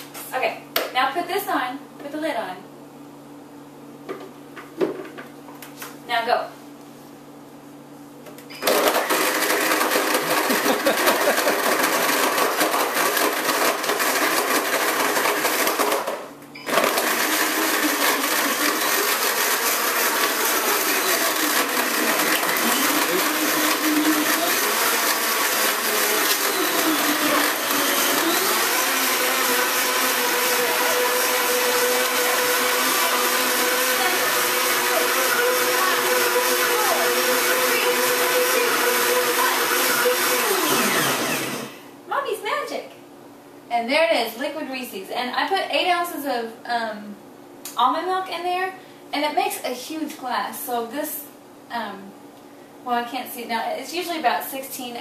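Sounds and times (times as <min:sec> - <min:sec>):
blender crushing ice: 0:08.6 - 0:41.8.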